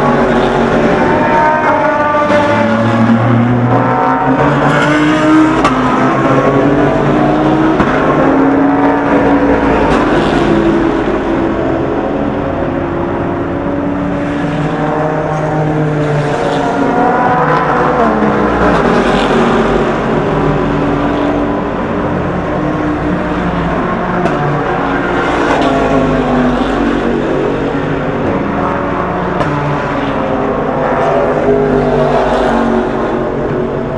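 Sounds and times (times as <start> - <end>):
race car engines: 0.0 - 33.9.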